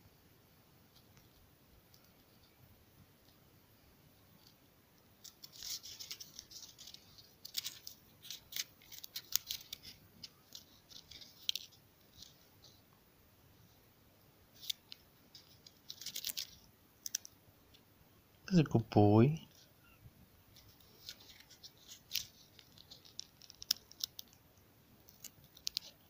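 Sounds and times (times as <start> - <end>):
kitten gnawing on wood: 4.4 - 12.4, 14.6 - 17.4, 20.5 - 26.0.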